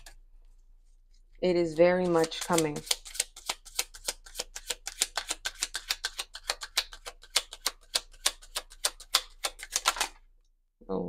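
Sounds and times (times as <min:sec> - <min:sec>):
cards being shuffled: 0:01.2 - 0:10.2.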